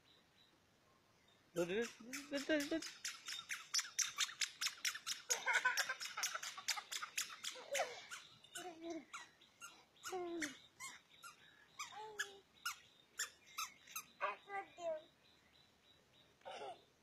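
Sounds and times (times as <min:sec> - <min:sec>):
sharp clicks: 0:01.7 - 0:07.8.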